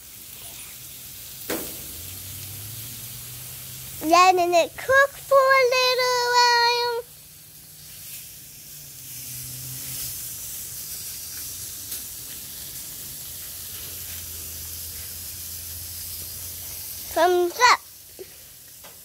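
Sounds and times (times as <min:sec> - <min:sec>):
meat sizzling on a grill: 0:00.0 - 0:19.0
faint crackles: 0:03.9 - 0:19.0.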